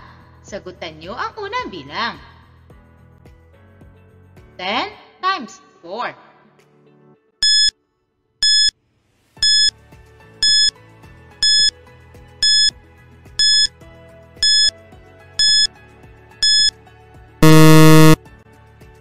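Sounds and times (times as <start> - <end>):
low buzzer tone: 7.4 - 7.7, 8.4 - 8.7, 9.4 - 9.7, 10.4 - 10.7, 11.4 - 11.7, 12.4 - 12.7, 13.4 - 13.7, 14.4 - 14.7, 15.4 - 15.7, 16.4 - 16.7, 17.4 - 18.2
short high timer beeps: 7.4 - 7.7, 8.4 - 8.7, 9.4 - 9.7, 10.4 - 10.7, 11.4 - 11.7, 12.4 - 12.7, 13.4 - 13.7, 14.4 - 14.7, 15.4 - 15.7, 16.4 - 16.7, 17.4 - 18.2.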